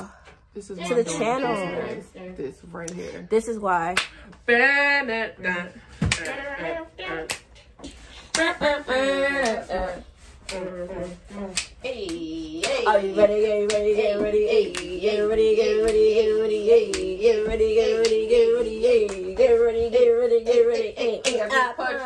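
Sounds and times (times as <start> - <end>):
rhythmic hand claps: 3.9 - 4.4, 6.0 - 22.0.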